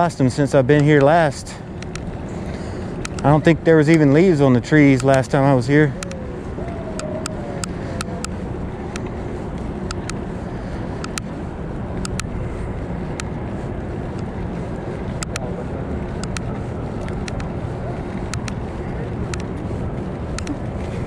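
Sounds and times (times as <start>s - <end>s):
tyres on pavement: 0.0s - 21.0s
sharp clicks and ticks: 0.1s - 21.0s
wind on microphone: 4.9s - 21.0s.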